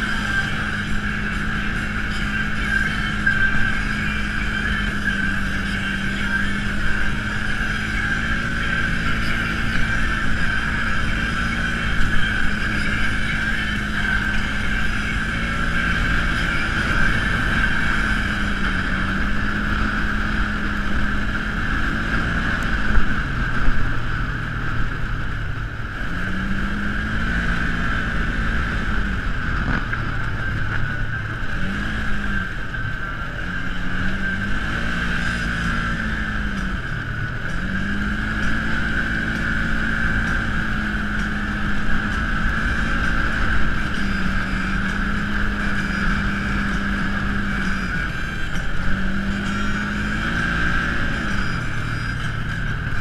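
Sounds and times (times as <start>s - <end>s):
off-road vehicle engine running: 0.0s - 53.0s
steady high whine: 0.0s - 53.0s.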